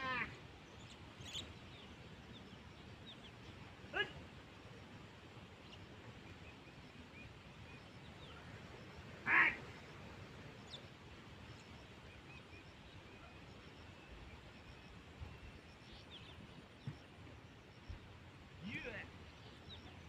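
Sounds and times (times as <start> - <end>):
small bird chirps: 0.6 - 3.5.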